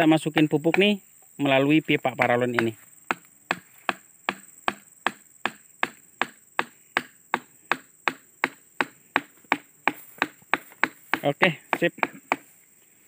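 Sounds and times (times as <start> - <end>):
hammer tapping plastic pipe: 0.7 - 0.9, 2.6 - 12.5.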